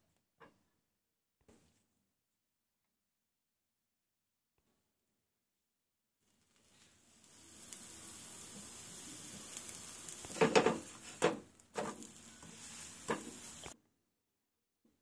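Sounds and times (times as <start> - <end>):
flatbread sizzling in oil: 6.2 - 13.8
steel spatula scraping a pan: 6.6 - 13.8.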